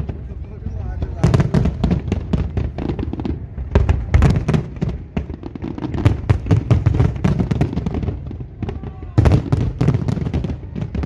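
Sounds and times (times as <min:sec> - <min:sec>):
fireworks bursting: 0:00.0 - 0:11.0.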